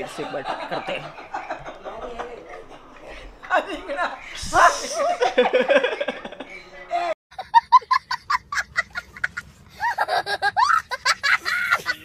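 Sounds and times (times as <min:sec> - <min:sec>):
young child laughing: 0:07.4 - 0:12.0.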